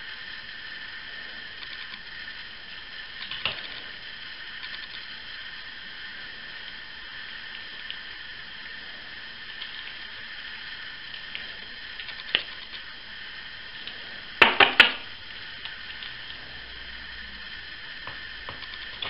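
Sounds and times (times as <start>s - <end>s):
faint steady hiss: 0.0s - 19.0s
sharp clicks: 1.6s - 2.0s, 4.6s - 5.1s, 12.0s - 12.8s, 18.6s - 19.0s.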